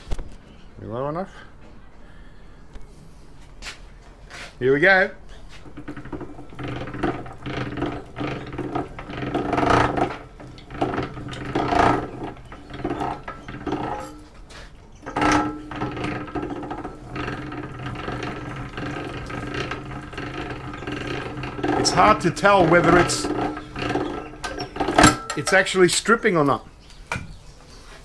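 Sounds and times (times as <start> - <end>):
wire stripper gears turning: 4.7 - 26.6.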